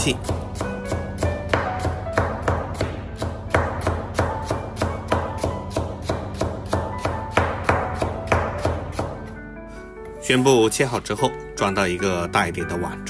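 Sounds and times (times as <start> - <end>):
cleaver chopping on wooden board: 0.0 - 9.2.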